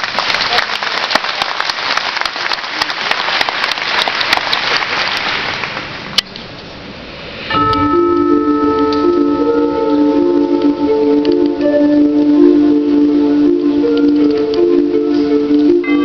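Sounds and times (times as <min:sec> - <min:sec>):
audience applauding: 0:00.0 - 0:06.0
keyboard chords: 0:07.5 - 0:16.0.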